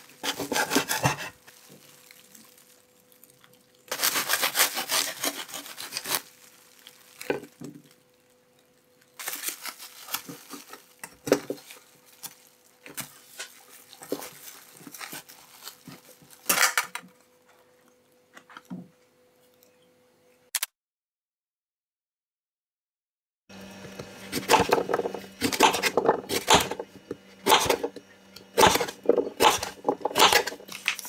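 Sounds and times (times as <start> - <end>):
plastic wrap crinkling: 0.0 - 17.0, 29.1 - 31.0
knife sawing through sandwich: 0.2 - 1.4, 3.9 - 6.3.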